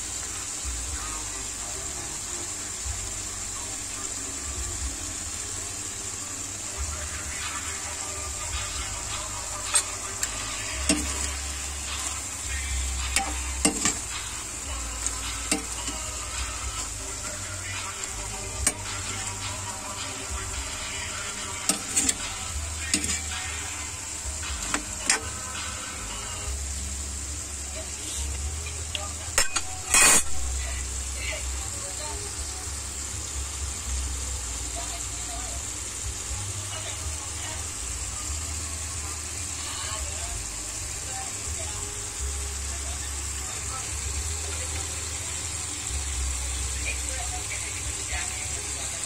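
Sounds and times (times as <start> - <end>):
meat and onions sizzling in pan: 0.0 - 49.0
spatula scraping pan: 9.6 - 14.4, 21.3 - 23.9, 28.1 - 30.5.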